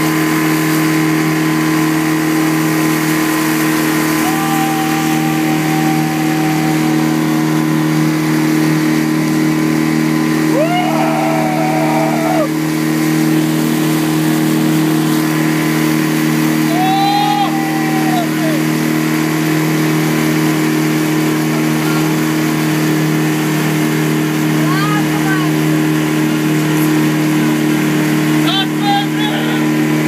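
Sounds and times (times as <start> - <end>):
motorboat engine running: 0.0 - 30.0
rush of boat wake: 0.0 - 30.0
person calling out: 4.2 - 7.2, 16.7 - 18.7, 28.4 - 29.7.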